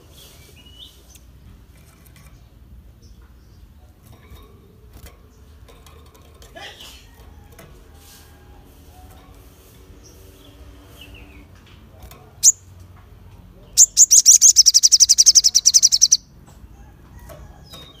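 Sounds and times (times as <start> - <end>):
bird chirp: 12.4 - 12.7, 13.5 - 16.4
fast high bird trill: 13.8 - 16.3.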